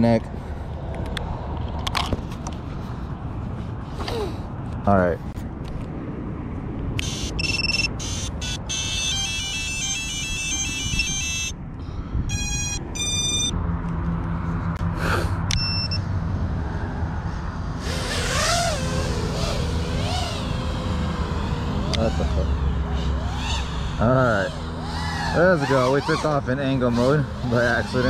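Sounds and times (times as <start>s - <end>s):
drone motors humming: 6.9s - 28.0s
electronic beep tones: 7.2s - 7.9s, 12.3s - 13.5s, 15.6s - 16.1s
drone motor whine: 15.0s - 28.0s.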